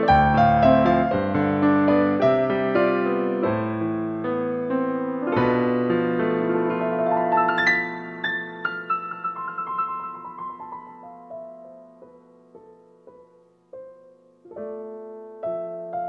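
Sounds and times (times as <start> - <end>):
piano music: 0.0 - 16.0.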